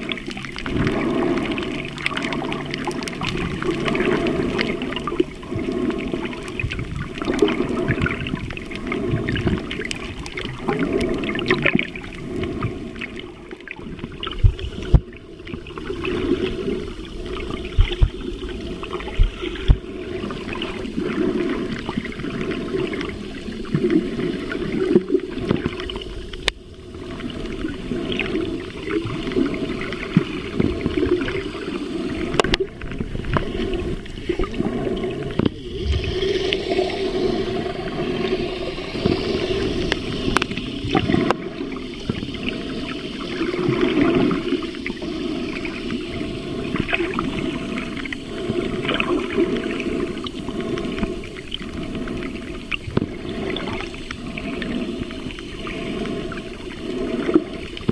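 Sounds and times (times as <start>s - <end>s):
underwater water swirling and bubbling: 0.0s - 57.9s.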